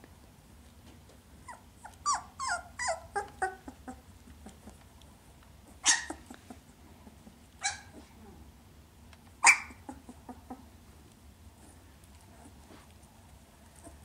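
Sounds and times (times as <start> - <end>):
puppy barking: 5.8 - 6.3, 7.6 - 8.0, 9.4 - 10.0.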